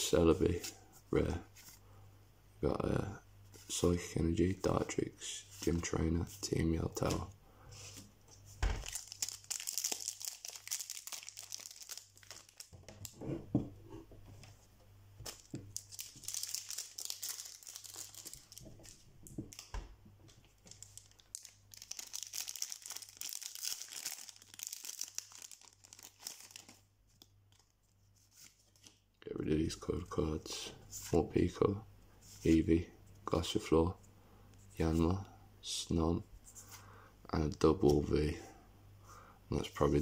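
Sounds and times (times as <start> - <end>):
foil wrapper crinkling and tearing: 8.8 - 13.2, 15.2 - 19.7, 20.6 - 26.8.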